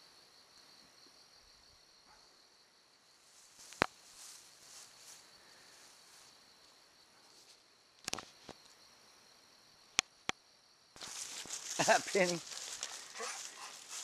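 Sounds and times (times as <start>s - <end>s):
insects chirring: 0.0s - 14.0s
soft rustling: 3.2s - 6.4s, 11.0s - 14.0s.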